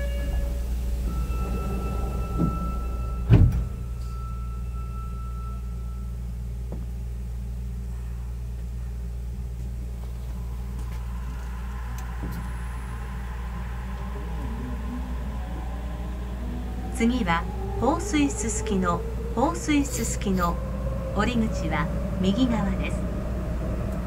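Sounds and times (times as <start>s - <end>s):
held warning tone: 0.0s - 6.6s, 10.4s - 23.9s
train car low hum: 0.0s - 24.0s
sliding doors shutting with thump: 1.1s - 3.9s.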